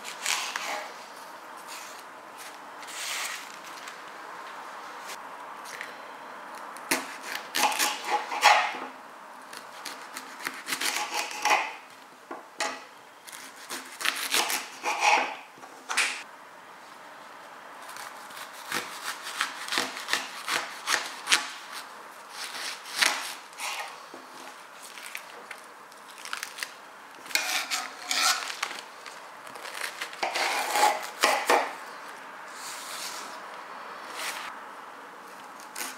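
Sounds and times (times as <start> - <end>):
knife cutting leeks: 0.0 - 0.9, 9.5 - 11.7, 17.9 - 23.9, 29.5 - 31.8.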